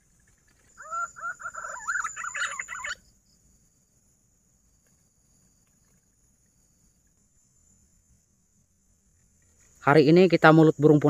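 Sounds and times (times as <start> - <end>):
pigeon whistled warbling call: 0.8 - 3.0.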